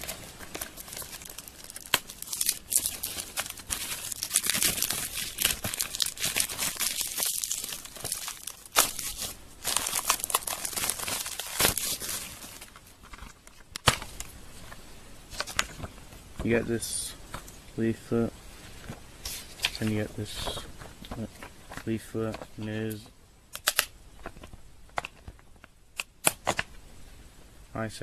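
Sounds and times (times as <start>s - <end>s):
plastic wrapping crinkling: 0.0s - 16.6s, 18.6s - 22.9s.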